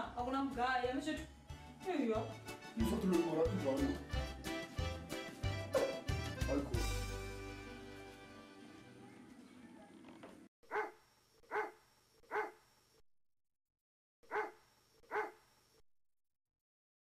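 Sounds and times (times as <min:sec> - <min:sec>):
background music: 0:00.0 - 0:09.4
dog barking: 0:05.8 - 0:06.0, 0:10.6 - 0:12.6, 0:14.3 - 0:15.4.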